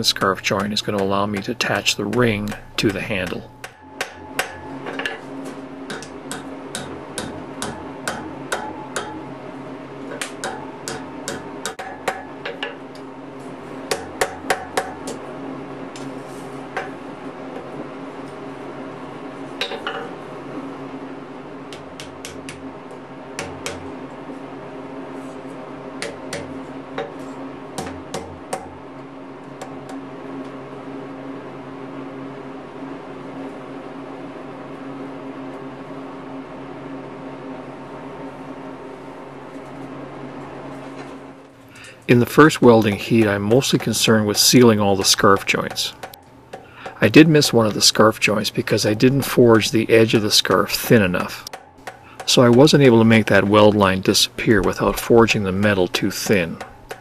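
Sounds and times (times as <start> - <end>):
steady low hum: 0.0 - 57.0
hammer striking iron on anvil: 0.2 - 9.3, 10.1 - 12.8, 13.9 - 15.2, 19.6 - 20.1, 26.0 - 28.8, 42.6 - 47.8, 51.4 - 53.4.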